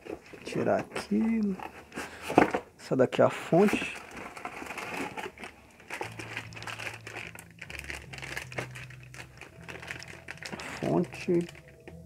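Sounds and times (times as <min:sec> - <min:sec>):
plastic packaging crinkling: 0:03.6 - 0:12.0.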